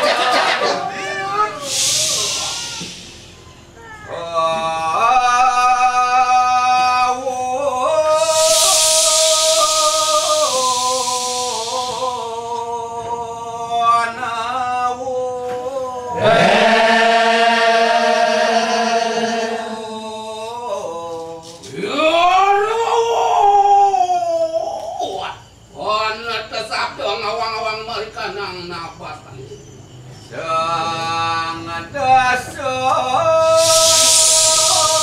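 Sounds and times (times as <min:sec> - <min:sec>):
men chanting in chorus: 0:00.0 - 0:03.1, 0:04.1 - 0:22.6, 0:30.3 - 0:35.0
loud hissing rush: 0:00.0 - 0:04.1, 0:07.0 - 0:13.1, 0:33.4 - 0:35.0.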